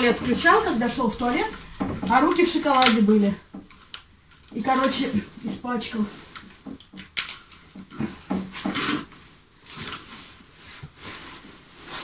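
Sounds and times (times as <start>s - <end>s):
heavy fabric curtain rustling: 7.6s - 12.0s.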